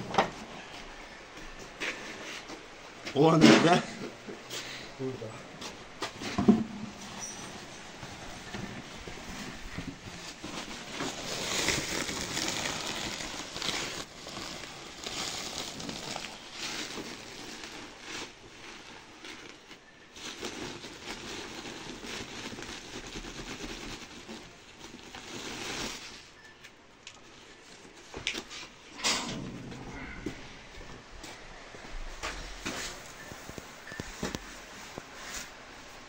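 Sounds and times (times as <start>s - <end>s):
plastic sack crinkling: 7.0s - 26.3s.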